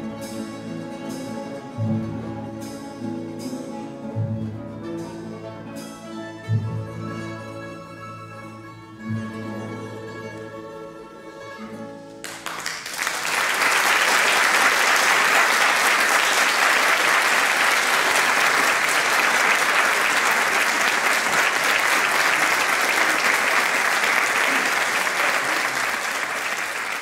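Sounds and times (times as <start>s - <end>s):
mandolin and guitar orchestra: 0.0s - 27.0s
audience applause: 12.2s - 27.0s.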